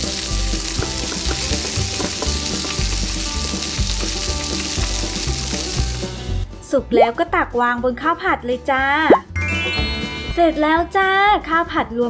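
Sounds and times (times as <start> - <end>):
egg sizzling in a pan: 0.0 - 6.4
soft background music: 0.0 - 12.0.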